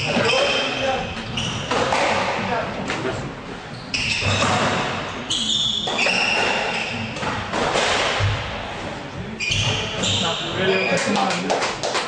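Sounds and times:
shoes squeaking on wooden floor: 0.0s - 2.3s, 3.6s - 8.4s, 9.2s - 11.3s
squash ball hitting rackets and walls: 1.2s - 2.6s, 4.0s - 8.9s.

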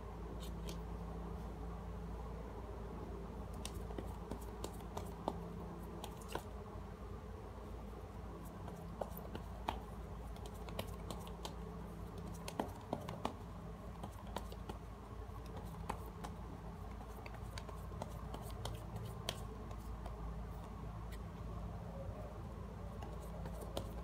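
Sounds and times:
cards clicking and tapping: 3.6s - 5.4s, 9.0s - 11.6s, 15.4s - 20.2s.

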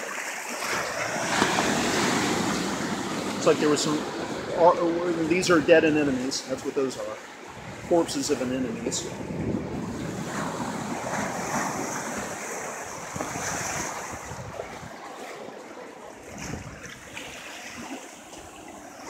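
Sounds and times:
waves washing on rocky shore: 0.0s - 19.0s
wind on microphone: 7.5s - 15.1s, 16.2s - 17.4s.

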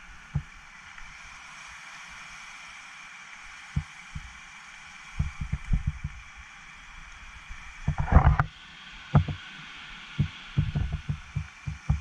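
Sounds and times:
small waves breaking on rocks: 0.0s - 12.0s
short low thumps: 10.2s - 12.0s.

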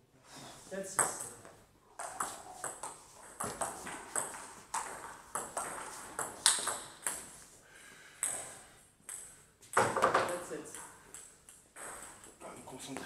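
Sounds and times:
ball bouncing on table: 2.0s - 7.2s, 9.1s - 12.4s
ball clicking off bats: 2.0s - 7.2s.

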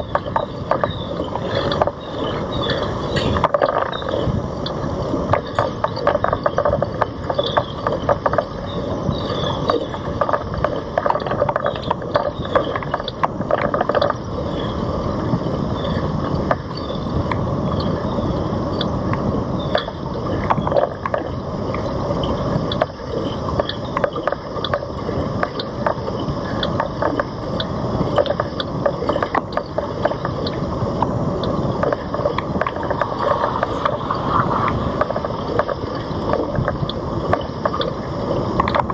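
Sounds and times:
tyre and wind noise: 0.0s - 38.9s
bicycle rattling and clicking: 9.1s - 14.6s.

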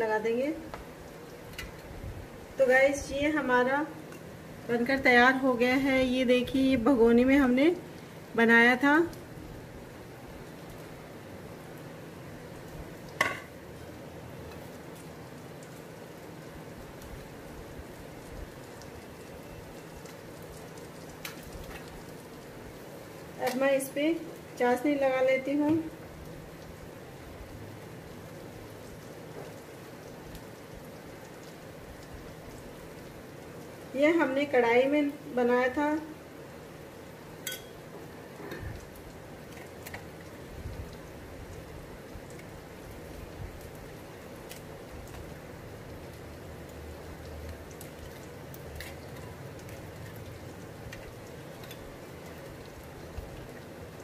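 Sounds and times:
steady background hiss: 0.0s - 54.0s
spoon clinking against steel bowls: 37.4s - 37.8s.

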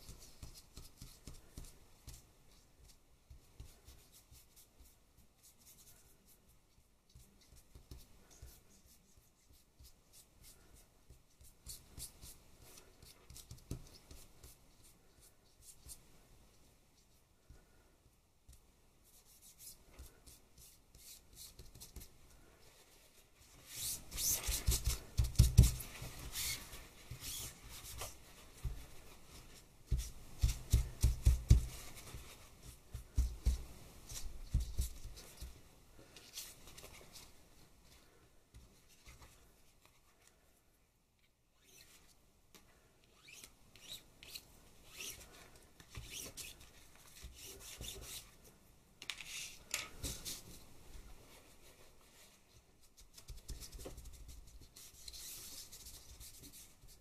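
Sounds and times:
cloth rubbing on card: 22.7s - 35.5s.

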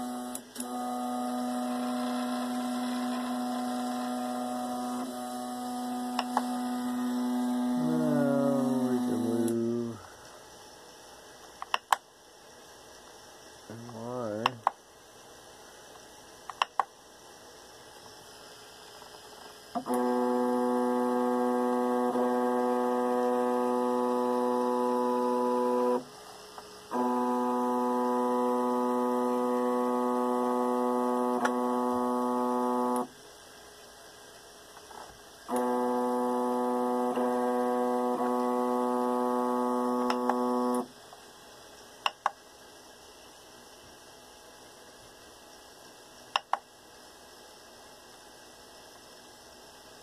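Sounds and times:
stepper motor whine: 0.0s - 10.1s, 19.0s - 33.1s, 35.0s - 40.9s
sharp clicks: 16.5s - 16.9s, 46.3s - 46.6s.

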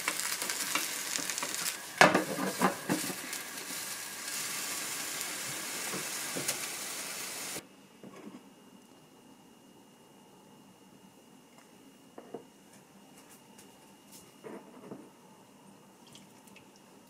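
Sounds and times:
food sizzling in a pan: 0.0s - 7.6s.

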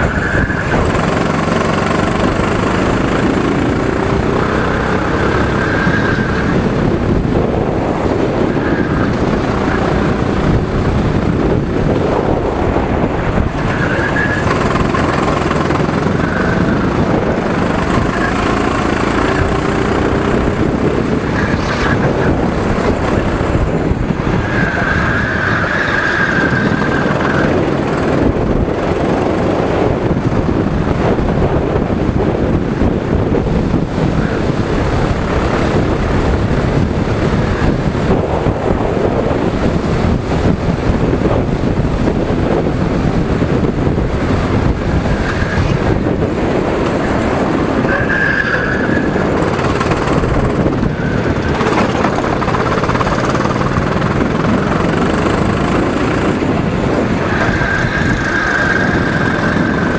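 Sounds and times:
go-kart engine: 0.0s - 59.9s
wind noise on microphone: 0.0s - 59.9s.

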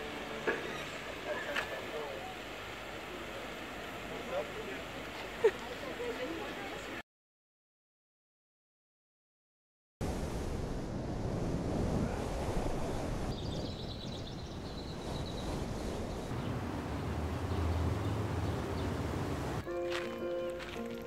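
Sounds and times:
wind on microphone: 10.0s - 19.6s
small bird chirping: 13.4s - 16.5s.

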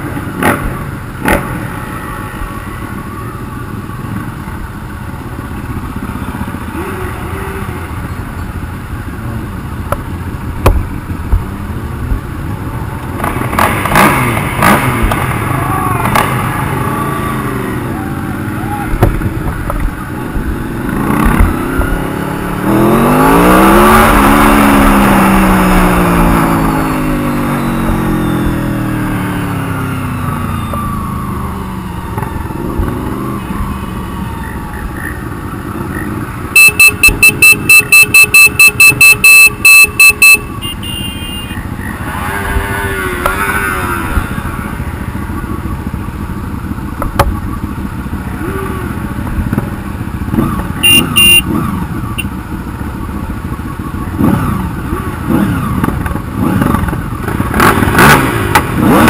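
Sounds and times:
motorcycle engines revving: 0.0s - 59.0s
horn beeping: 36.0s - 43.1s, 50.3s - 52.8s.

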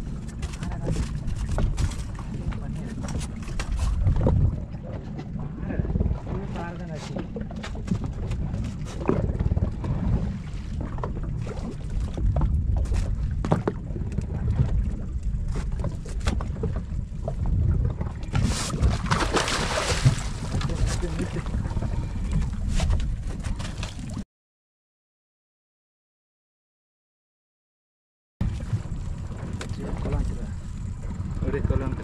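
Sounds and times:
wind buffeting microphone: 0.0s - 23.8s, 28.4s - 32.0s
fish splashing: 18.4s - 21.4s.

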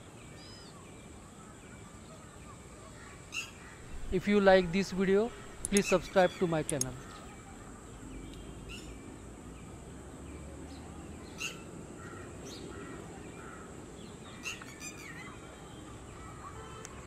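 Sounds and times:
bird chirps: 3.3s - 7.5s.

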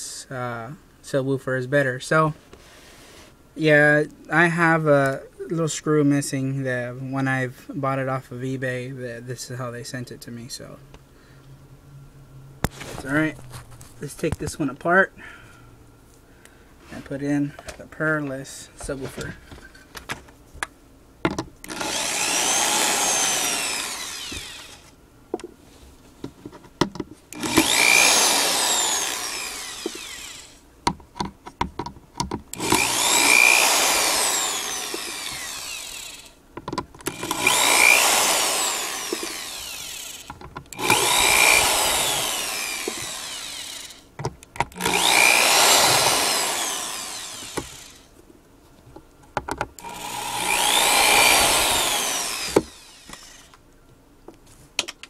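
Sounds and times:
power drill whining: 21.6s - 25.0s, 27.3s - 30.6s, 32.5s - 36.4s, 37.0s - 44.1s, 44.7s - 48.1s, 49.8s - 53.6s.

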